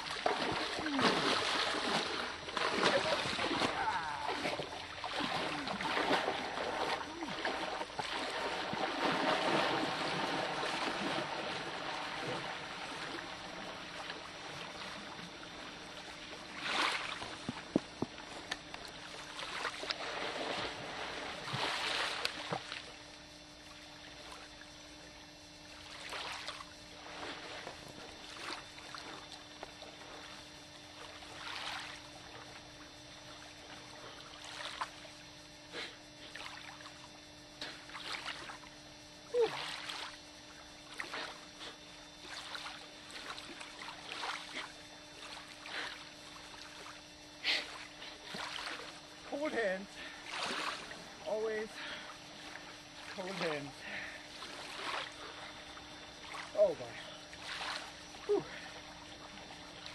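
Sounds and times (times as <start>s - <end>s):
water splashing: 0.0s - 23.0s, 31.0s - 32.6s, 37.8s - 38.6s, 39.4s - 40.2s, 42.2s - 47.0s, 47.6s - 59.9s.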